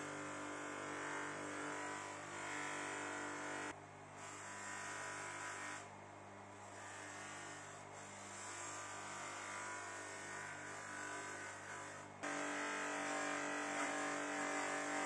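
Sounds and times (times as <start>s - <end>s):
electric motor humming: 10.3s - 15.0s.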